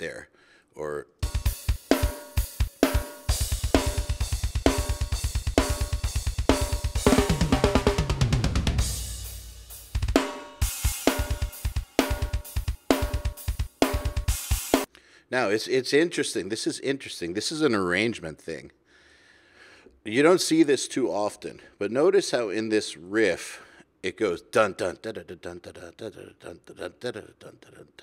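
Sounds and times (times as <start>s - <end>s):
kick drum: 10.0s - 14.4s
snare drum hits: 10.0s - 14.9s.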